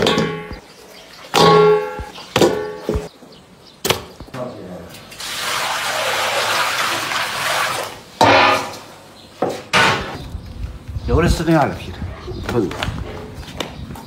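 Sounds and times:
ringing metal knocks: 0.0s - 0.6s, 1.4s - 3.1s, 8.2s - 8.8s
water pouring into pot: 5.2s - 8.0s
loud ringing strike: 8.2s - 8.9s.

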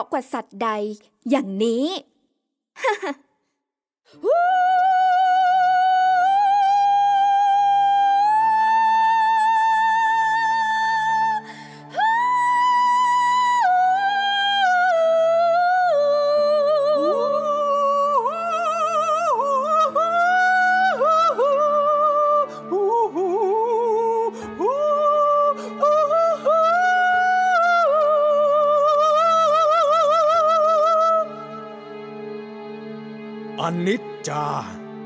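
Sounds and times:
wordless high singing: 33.5s - 35.0s.

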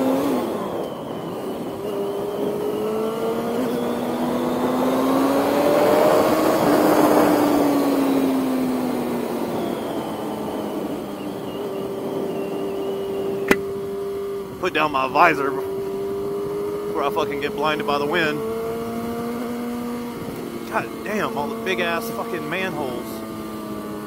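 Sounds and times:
motorcycle engine revving: 0.0s - 24.0s
wind on microphone: 5.6s - 17.0s.

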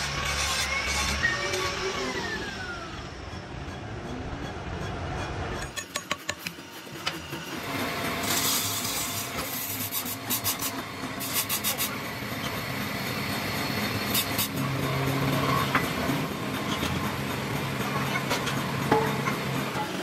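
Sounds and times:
steel shaft scraping on floor: 0.0s - 2.1s.

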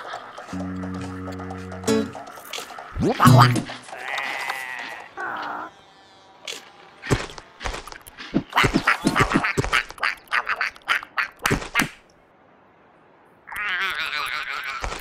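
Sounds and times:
cartoon parrot squawking: 13.5s - 15.0s.

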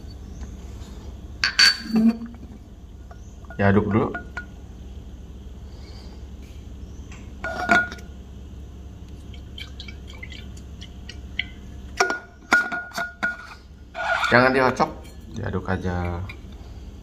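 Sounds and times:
glass tumbler clinking: 7.4s - 8.0s.

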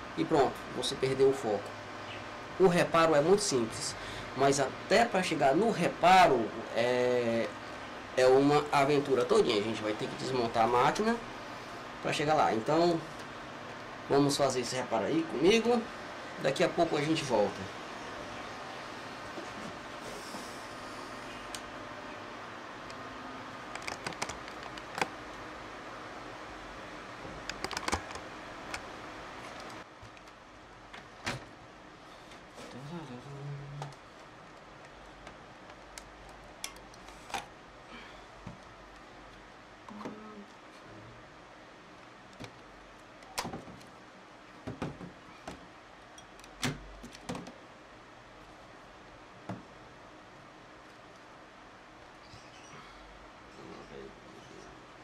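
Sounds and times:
steady background hiss: 0.0s - 55.0s
clicks of casing parts handled: 23.7s - 25.1s, 27.4s - 28.8s.

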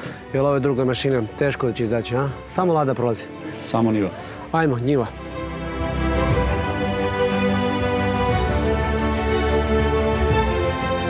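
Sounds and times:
instrumental music with beat: 5.3s - 11.0s.

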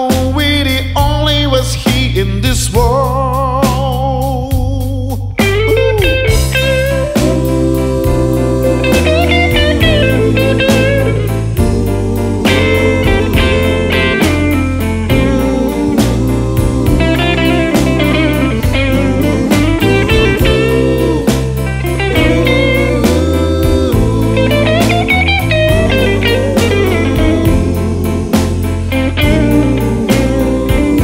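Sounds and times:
blues guitar music: 0.1s - 31.0s
drum beat: 5.4s - 29.6s.

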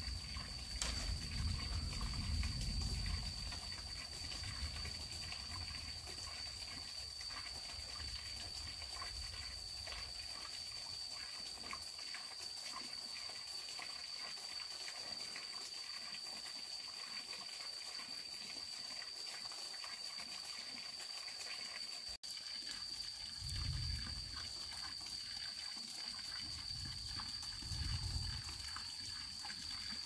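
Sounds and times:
rustling and ticks among bamboo: 0.0s - 4.5s
insects droning: 0.0s - 30.0s.

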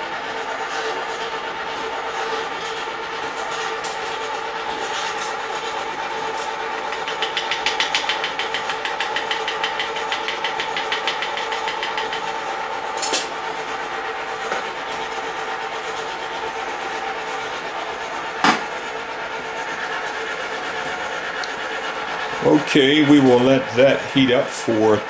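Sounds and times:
popcorn machine motor hum: 0.0s - 25.0s
rapid rattle of clicks: 6.4s - 12.3s.

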